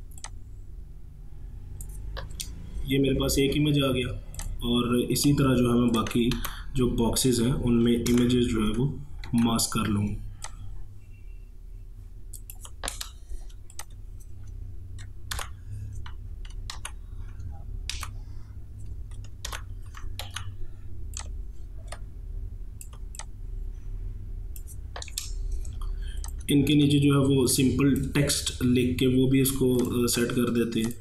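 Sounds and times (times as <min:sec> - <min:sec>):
low steady hum: 0:00.0 - 0:31.0
computer mouse clicks: 0:00.1 - 0:00.4, 0:01.8 - 0:02.6, 0:05.2 - 0:06.6, 0:07.8 - 0:08.5, 0:09.2 - 0:10.6, 0:12.3 - 0:22.1, 0:22.8 - 0:23.4, 0:24.5 - 0:26.8, 0:29.7 - 0:31.0
keyboard key presses: 0:07.8 - 0:10.6, 0:12.3 - 0:18.2, 0:18.8 - 0:22.1, 0:24.6 - 0:26.5.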